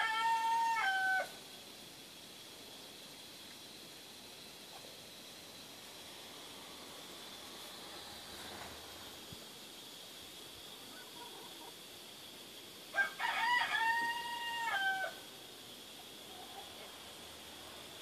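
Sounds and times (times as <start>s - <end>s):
rooster crowing: 0.0s - 1.4s, 12.9s - 15.3s.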